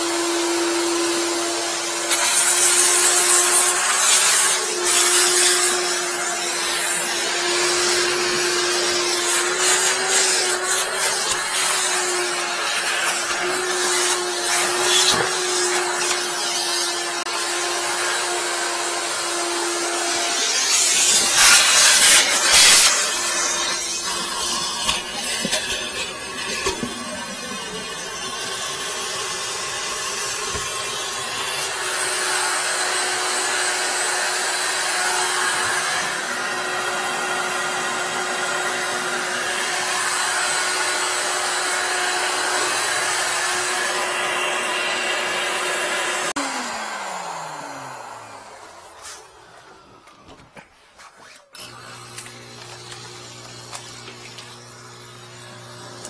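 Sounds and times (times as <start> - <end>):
vacuum motor humming: 0.0 - 50.7, 51.3 - 56.0.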